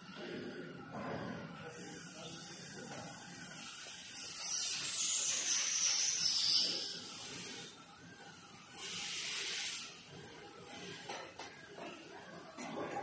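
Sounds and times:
hiss: 8.8 - 10.0.

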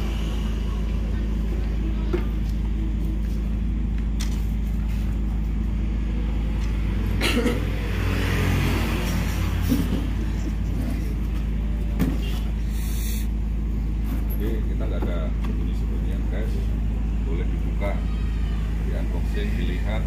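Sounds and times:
low engine-like rumble: 0.0 - 20.0.

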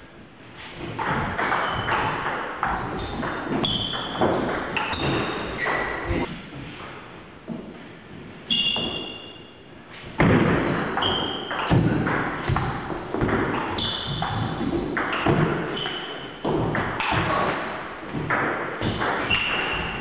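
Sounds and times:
shoe squeaks: 1.4 - 6.3, 8.5 - 9.6, 10.6 - 12.7, 13.5 - 17.1, 18.8 - 20.0.

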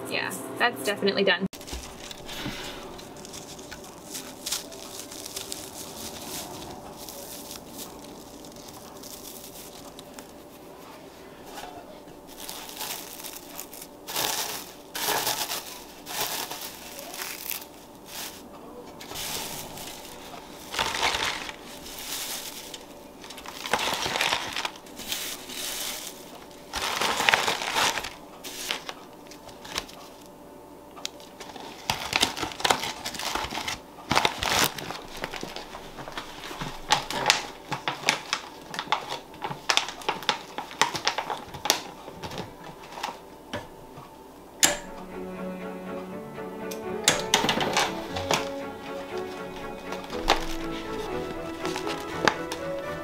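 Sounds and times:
dry food shreds clicking and crackling: 1.6 - 10.6, 11.6 - 30.3, 30.9 - 43.2, 47.2 - 53.0
foil bag crinkling and rustling: 1.6 - 30.3, 31.1 - 43.3, 47.3 - 53.0.

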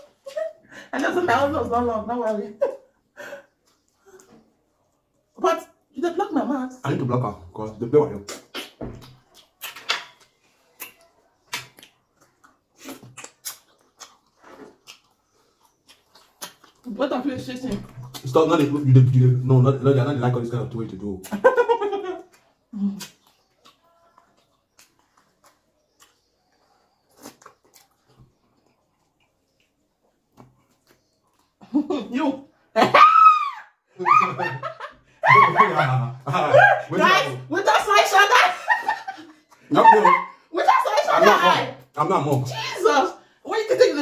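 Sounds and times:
wet eating clicks and smacks: 8.1 - 19.5, 21.2 - 31.7.

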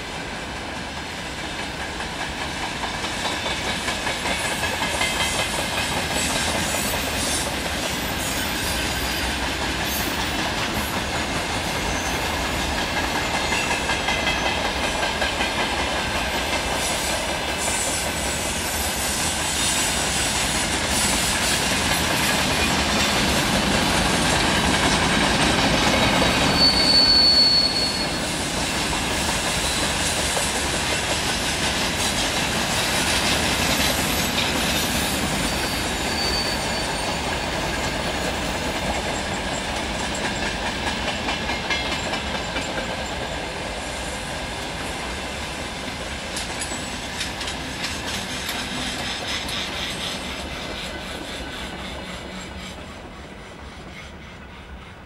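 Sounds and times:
train wheels rolling over rails: 0.0 - 55.0
high wheel squeal: 6.2 - 10.3, 11.6 - 12.6, 17.0 - 21.6, 26.0 - 28.5, 34.7 - 37.9.

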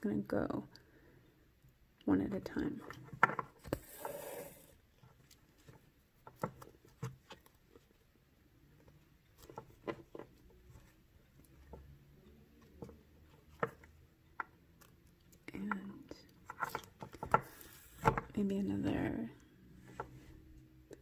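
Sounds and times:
thread drawn through hiss: 3.8 - 4.8.

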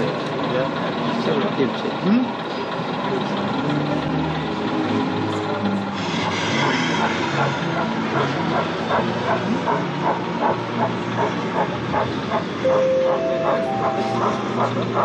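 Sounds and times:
model steam locomotive chuffing: 0.0 - 15.0
background hubbub: 7.2 - 15.0.

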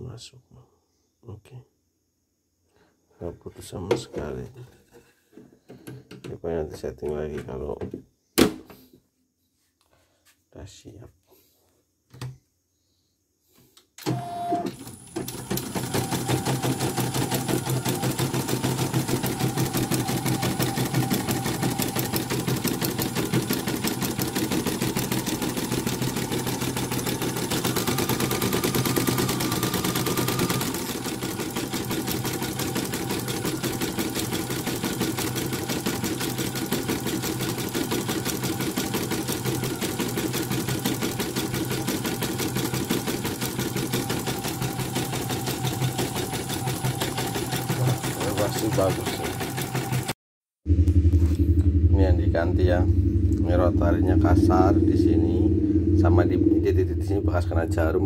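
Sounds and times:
embroidery machine stitching: 14.0 - 50.2.

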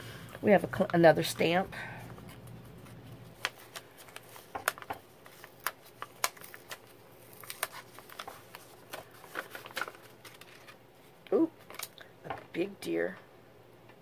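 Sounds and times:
paper bag crinkling: 2.2 - 10.8.

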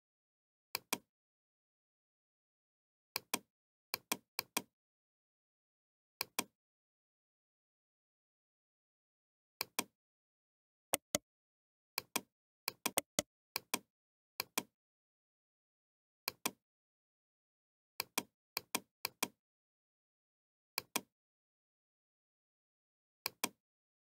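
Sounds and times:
computer mouse clicks: 6.2 - 6.5, 9.6 - 9.9, 11.0 - 11.2, 12.0 - 14.7, 23.2 - 23.6.

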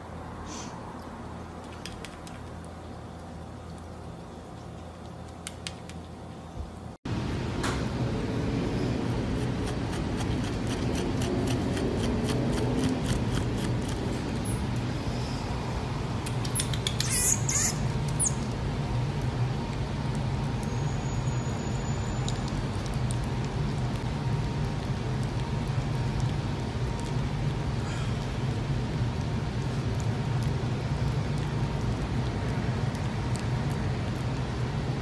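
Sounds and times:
steady low hum: 0.0 - 21.0
marmoset licking and smacking: 16.2 - 20.8, 29.6 - 34.4
marmoset high-pitched squeaks: 16.4 - 18.4.

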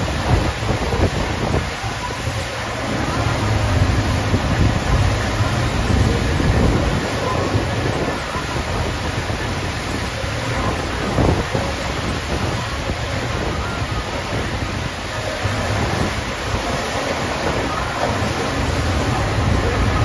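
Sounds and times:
water rushing up ride surface: 0.0 - 20.0.

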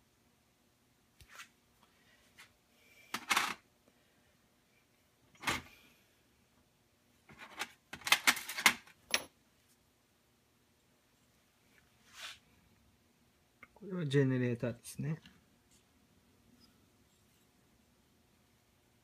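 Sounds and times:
small metal parts clattering: 7.3 - 9.3.

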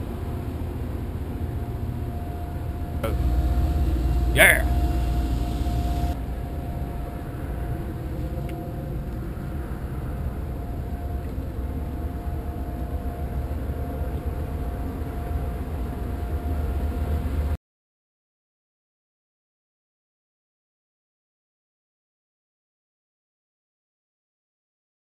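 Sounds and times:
faint constant hum: 0.0 - 17.6
vehicle rumbling in motion: 2.7 - 12.1.

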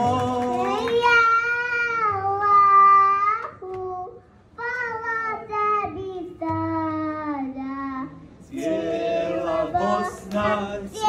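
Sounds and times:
girl singing into a microphone: 0.6 - 8.3.

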